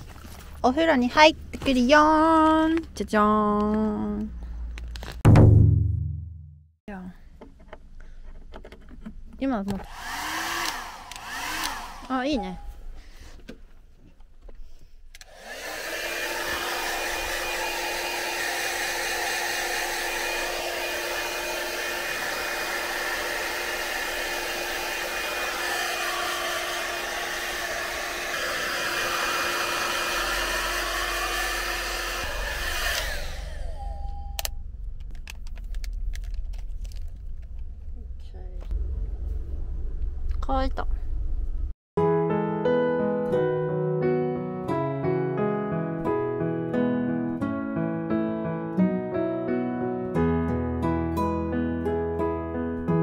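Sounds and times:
hair dryer blowing: 9.8 - 12.5, 15.2 - 34.1
cord rustling and clicks: 35.0 - 37.7.

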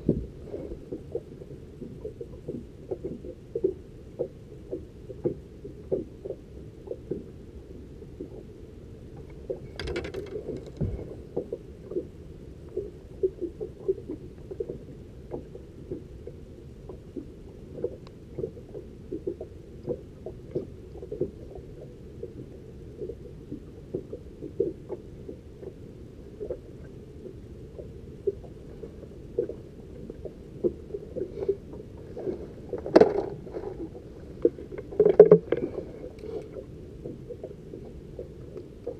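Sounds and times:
muffled low rumble: 0.0 - 38.9
water slapping against hull: 27.8 - 37.5.

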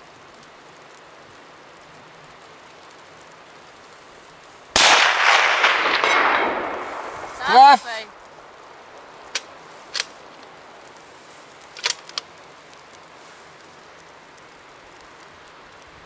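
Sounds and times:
wind noise: 4.8 - 10.9
rifle bolt metallic clicks: 9.3 - 10.2, 11.7 - 12.3.

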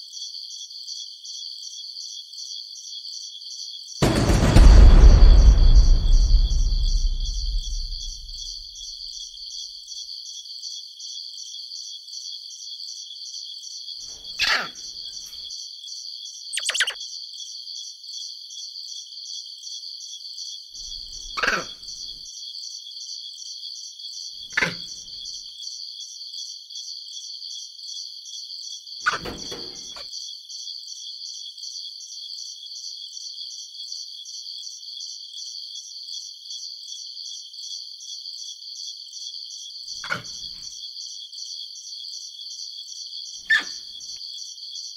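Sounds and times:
high fast-pulsing chirring: 16.6 - 17.0.

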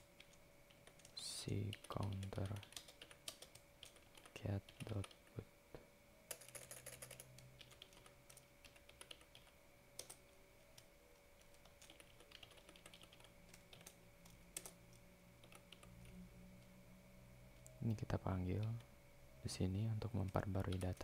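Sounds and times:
low steady hum: 0.0 - 21.0
keyboard typing: 0.2 - 5.3, 6.3 - 14.8, 15.4 - 16.2, 20.2 - 21.0.

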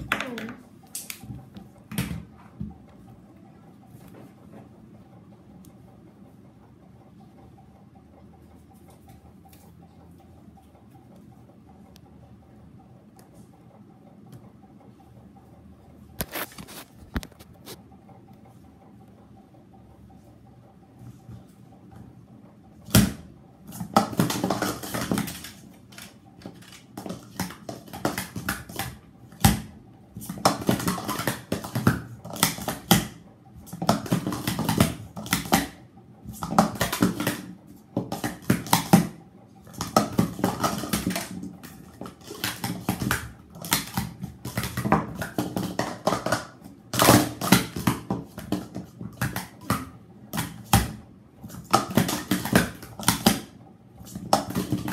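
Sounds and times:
plastic cups clattering on a mat: 23.0 - 54.9.

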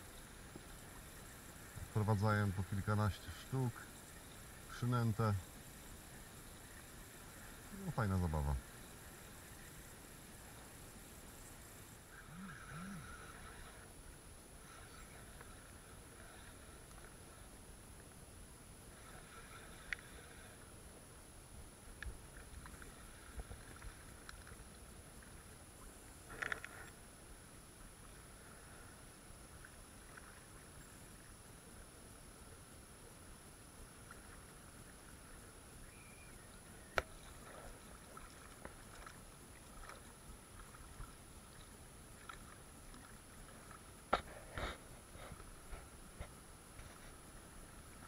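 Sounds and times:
faint clicks: 16.8 - 17.2, 19.8 - 20.1, 21.9 - 24.9, 26.3 - 27.0
light ticks: 19.8 - 20.1, 22.0 - 22.9, 23.7 - 24.8
sea water lapping: 36.6 - 48.0.

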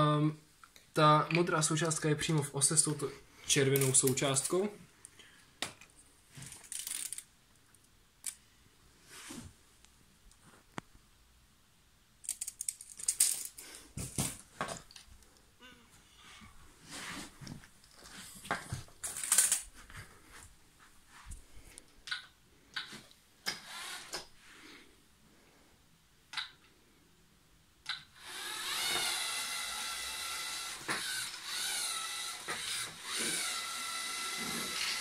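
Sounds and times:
clicks and knocks of robot handling: 5.6 - 7.3, 12.2 - 15.1, 19.0 - 19.7.

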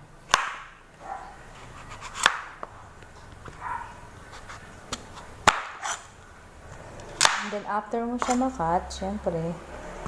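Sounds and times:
knife chopping on cutting board: 0.3 - 0.7, 1.8 - 2.5, 4.9 - 6.0, 8.2 - 8.4.

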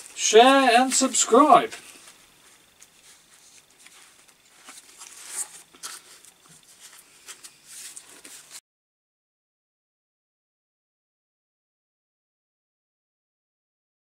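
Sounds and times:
faint rustling: 0.0 - 8.6.

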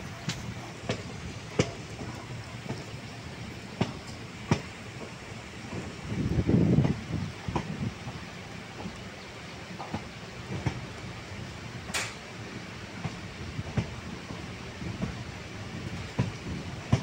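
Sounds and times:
train wheels and rushing air: 0.0 - 17.0
wheel clicks over rail joints: 11.8 - 12.3, 16.1 - 17.0.

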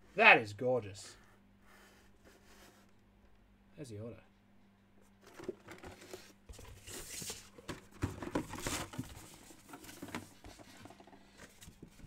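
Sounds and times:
plastic rustling and crinkling: 5.2 - 12.0.

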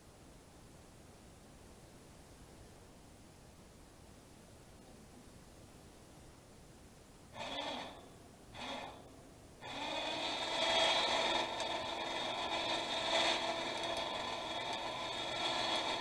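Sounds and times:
electric winch motor whining: 7.4 - 16.0.

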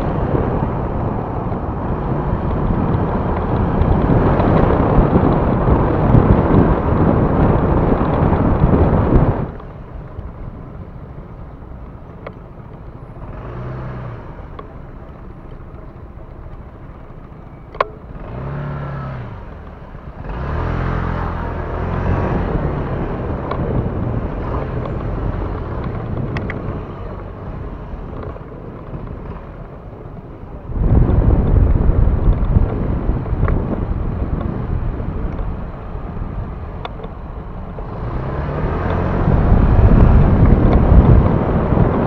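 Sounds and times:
low rumble: 0.0 - 42.0
motorcycle engines revving: 13.2 - 17.0, 17.8 - 42.0.

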